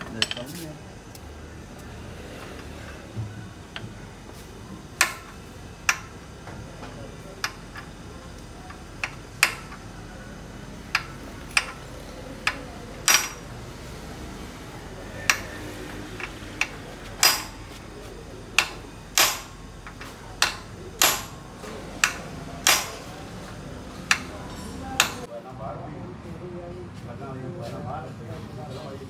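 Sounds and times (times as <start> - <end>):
hand tools knocking on metal: 0.0 - 0.6, 10.9 - 13.5, 15.2 - 15.6, 16.2 - 17.8, 18.5 - 23.1, 23.9 - 25.3.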